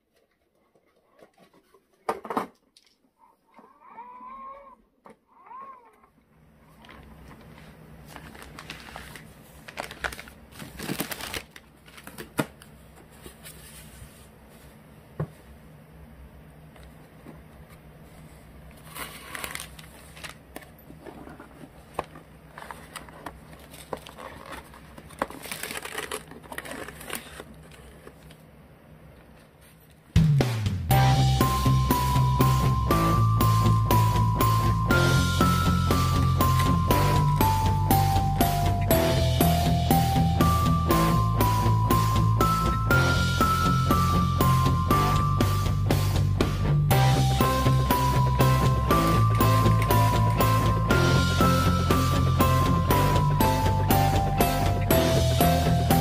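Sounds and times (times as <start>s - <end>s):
packaging rustling and scraping: 6.7s - 14.8s, 18.0s - 28.4s.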